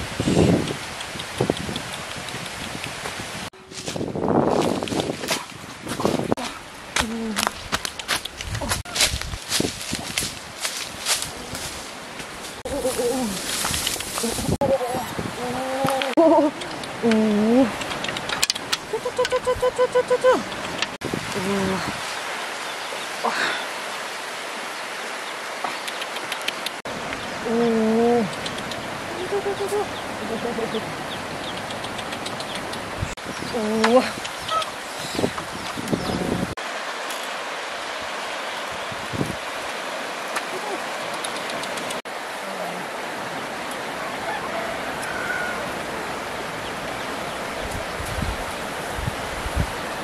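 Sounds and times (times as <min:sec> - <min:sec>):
rope and bamboo clicks: 0:00.7 - 0:03.2, 0:04.5 - 0:06.0, 0:07.0 - 0:11.7, 0:12.9 - 0:14.4, 0:15.8 - 0:19.4, 0:20.4 - 0:21.0, 0:25.6 - 0:27.2, 0:28.3 - 0:28.9, 0:31.5 - 0:33.0, 0:33.8 - 0:36.0, 0:40.3 - 0:42.0
river water flowing: 0:09.0 - 0:50.0.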